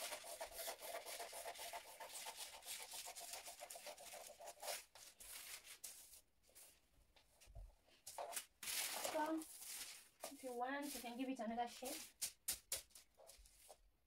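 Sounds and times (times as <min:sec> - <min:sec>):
scissors cutting paper: 0:00.0 - 0:06.1, 0:08.1 - 0:11.1.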